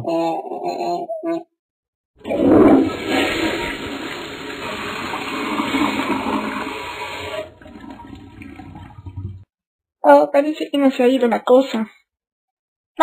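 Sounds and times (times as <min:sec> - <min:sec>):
toilet flushing: 0:02.2 - 0:09.4.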